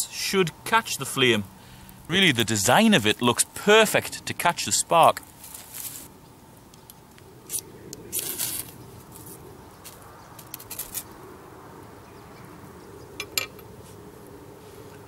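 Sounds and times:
striker scraping fire steel: 5.0 - 6.1, 7.5 - 11.2.

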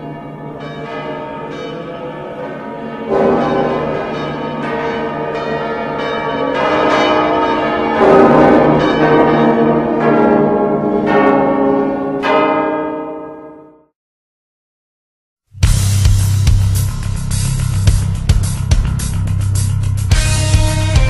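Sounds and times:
church bells pealing: 0.0 - 13.9.

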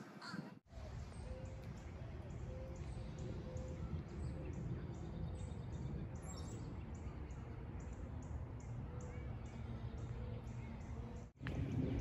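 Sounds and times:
low rumble: 11.4 - 12.0.

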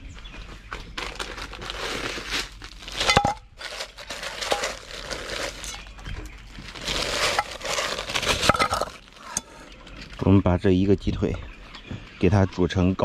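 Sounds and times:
plastic bag rustling: 0.2 - 10.2.

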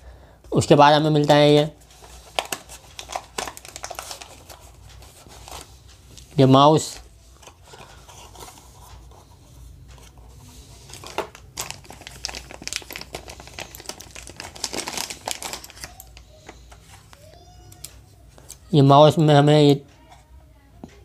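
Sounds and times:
plastic bag crinkling: 1.2 - 6.3, 10.8 - 16.4.

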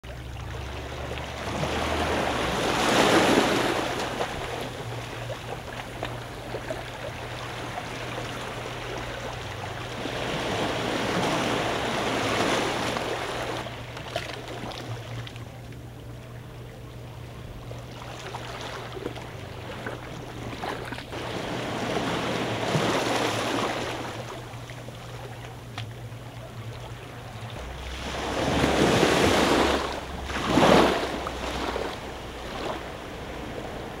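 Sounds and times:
steady low hum: 0.0 - 34.0
small waves washing over rocks: 1.2 - 4.9, 27.9 - 34.0.

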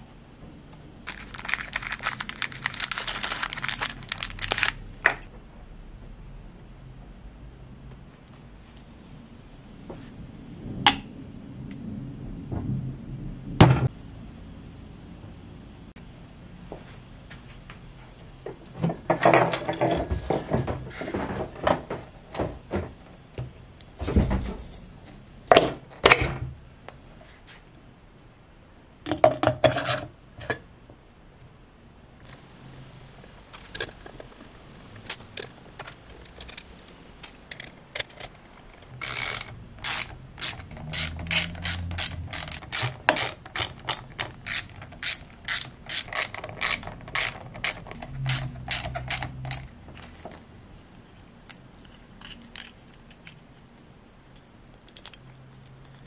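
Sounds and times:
metal clunks and scrapes: 18.5 - 23.0
ratcheting hand tool clicking: 36.1 - 49.7.

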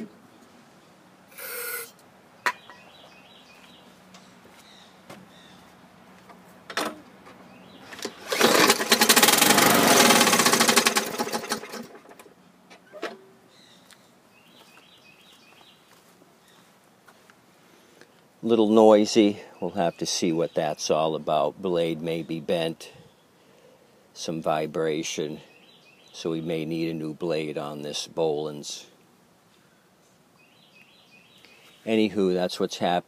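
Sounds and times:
lawn mower engine running: 7.8 - 12.3.

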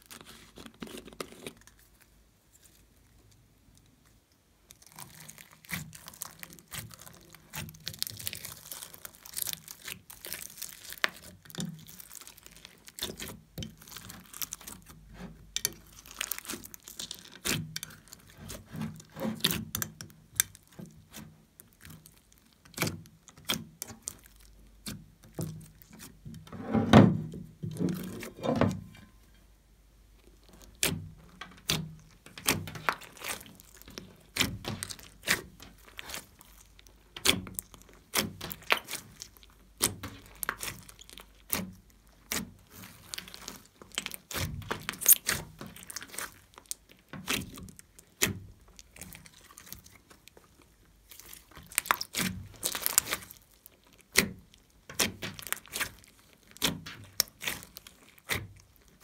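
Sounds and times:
hands squishing slime: 0.0 - 26.4, 30.2 - 59.0.

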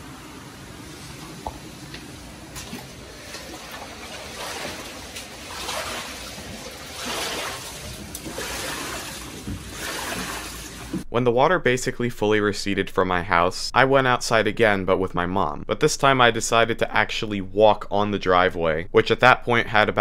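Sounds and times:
footsteps wading through water: 0.7 - 11.0.

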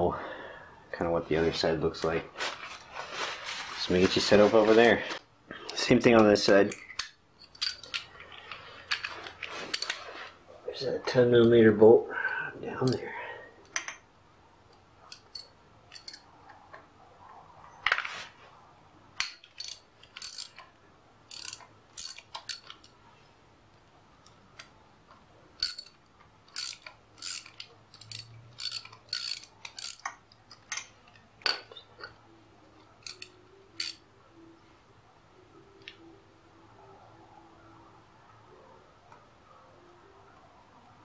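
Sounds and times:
socket ratchet clicking: 21.3 - 22.9, 25.6 - 30.8, 33.0 - 34.0.

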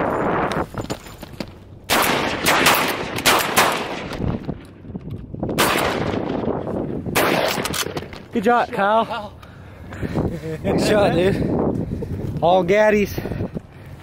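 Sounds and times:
shotgun blasts echoing: 1.9 - 4.2, 5.6 - 6.5, 7.1 - 8.1.

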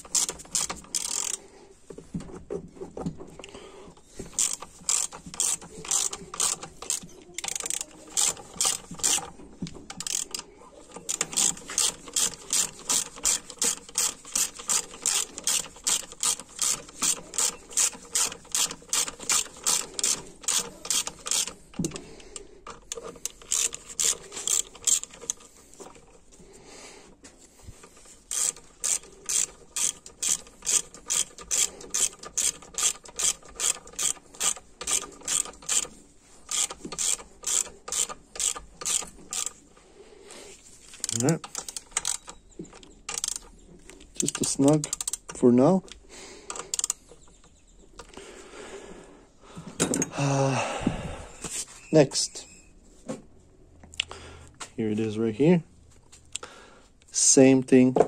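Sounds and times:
hand ratchet clicking: 0.0 - 1.4, 4.0 - 26.2, 27.6 - 39.8, 40.8 - 47.4.

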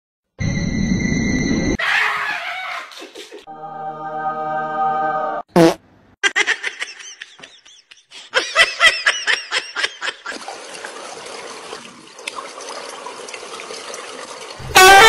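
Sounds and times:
person laughing: 2.9 - 3.5, 6.2 - 10.4.

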